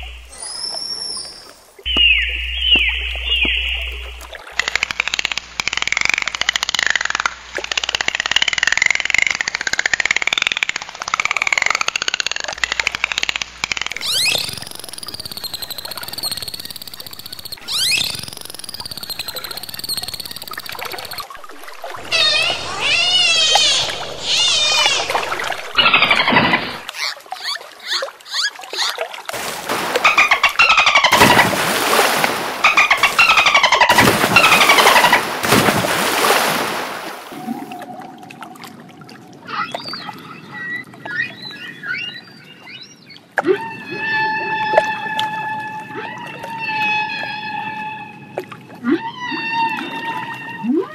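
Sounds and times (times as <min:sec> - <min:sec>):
dolphins whistling underwater: 0:00.0 - 0:07.2, 0:13.7 - 0:50.9
rapid dolphin clicks: 0:04.3 - 0:21.4
water splashing: 0:13.9 - 0:40.3
orca calls underwater: 0:21.8 - 0:29.0.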